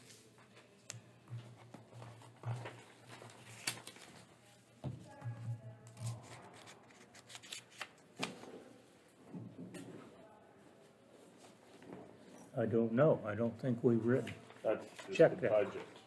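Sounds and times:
papers rustling: 0.0s - 4.7s, 5.8s - 8.7s, 14.1s - 16.0s.

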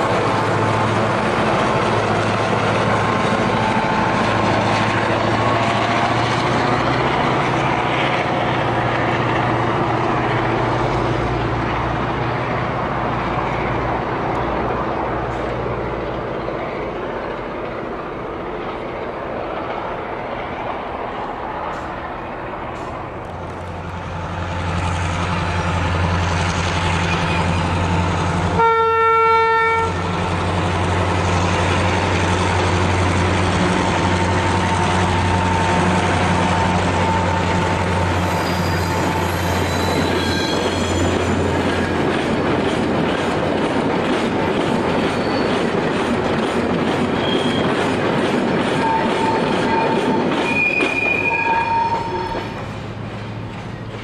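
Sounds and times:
diesel locomotive engine drone: 0.0s - 54.0s
train wheels on rails: 0.0s - 54.0s
train horn blast: 28.5s - 30.1s
wheel squeals: 37.0s - 41.9s, 45.0s - 45.7s, 47.2s - 47.9s, 48.8s - 52.6s.

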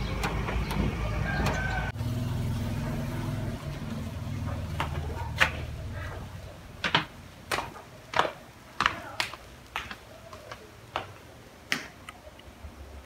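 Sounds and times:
slippers on tiled floor: 3.6s - 12.2s.

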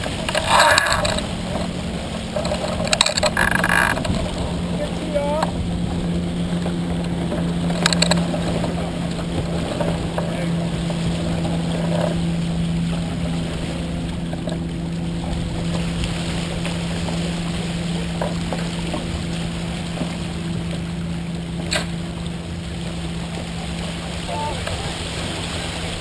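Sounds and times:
steady low hum: 0.0s - 26.0s
water rushing along hull: 0.0s - 26.0s.

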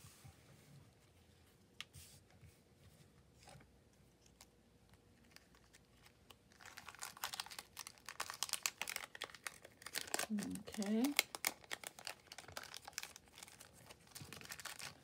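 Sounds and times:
plastic packet crinkling: 5.2s - 15.0s.

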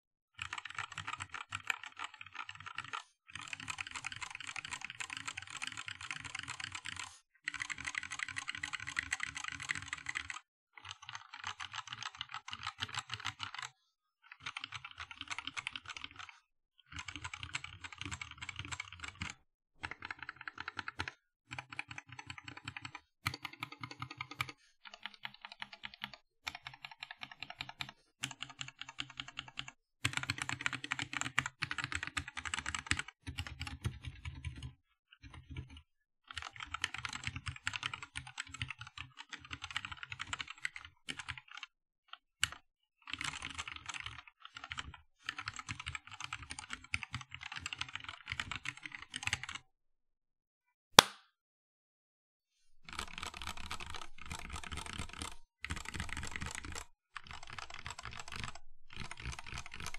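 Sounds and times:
mechanical keyboard clacking: 52.9s - 59.9s.

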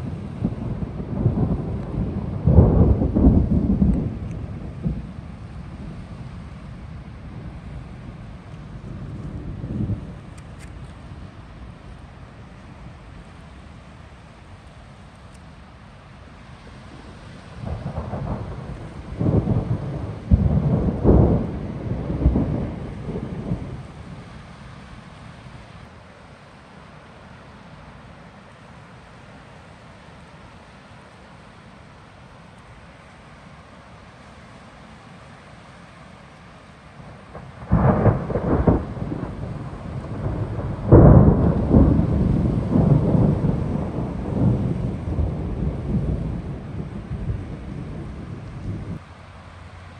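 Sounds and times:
thunder rumbling and cracking: 0.0s - 6.3s, 7.4s - 10.7s, 17.6s - 24.2s, 37.3s - 49.0s.

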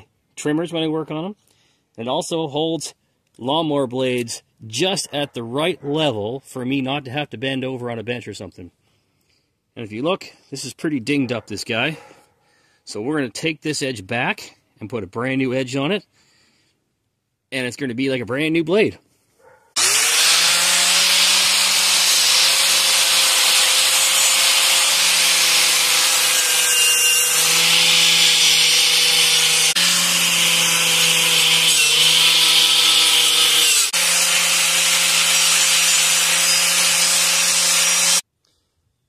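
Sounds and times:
angle grinder grinding metal: 19.7s - 38.2s.

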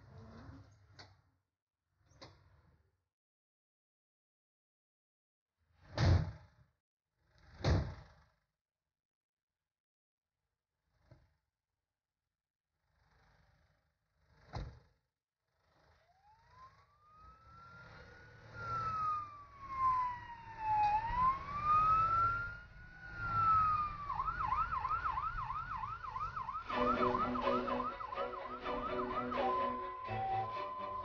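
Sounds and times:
ambulance siren wailing and yelping: 16.4s - 31.0s
music: 26.7s - 31.0s.

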